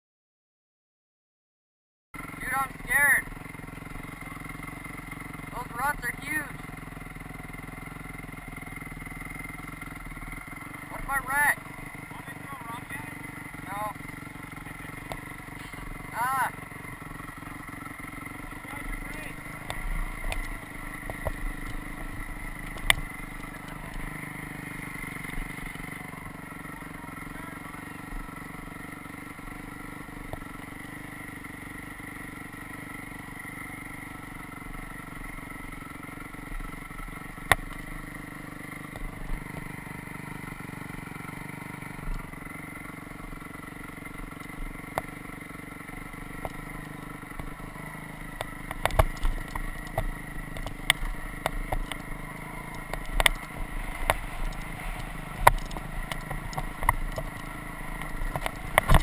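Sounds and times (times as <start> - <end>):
dirt bike engine running: 2.2 - 59.0
bike knocking and clattering: 43.4 - 59.0.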